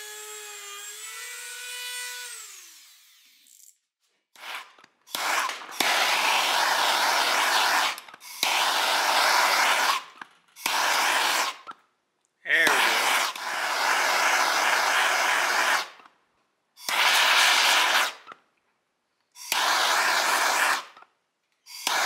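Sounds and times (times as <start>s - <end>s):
rotary tool whining: 0.0s - 11.8s
gas torch flame hissing: 4.4s - 11.7s, 12.6s - 16.0s, 16.8s - 18.3s, 19.4s - 21.0s, 21.7s - 22.0s.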